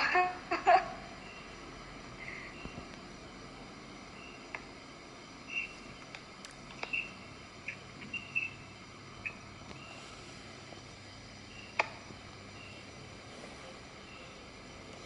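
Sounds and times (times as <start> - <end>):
low steady hiss: 0.0 - 15.0
faint high-pitched chirps: 4.1 - 4.5, 5.4 - 6.1, 6.7 - 10.2.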